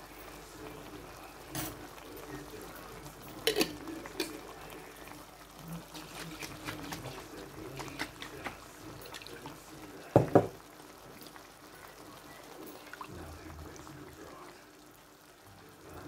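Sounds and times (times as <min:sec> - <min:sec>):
food sizzling in a pan: 0:00.0 - 0:16.0
thick sauce being poured: 0:03.4 - 0:11.4.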